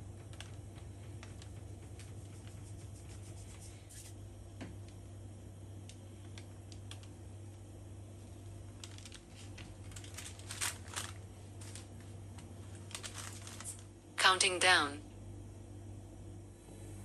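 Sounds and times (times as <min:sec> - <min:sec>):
steady low hum: 0:00.0 - 0:17.0
cloth rustling: 0:08.8 - 0:13.9.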